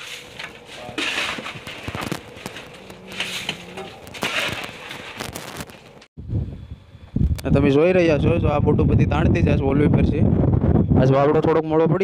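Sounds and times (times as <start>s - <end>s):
shovel scooping crushed ice: 0.0s - 5.8s.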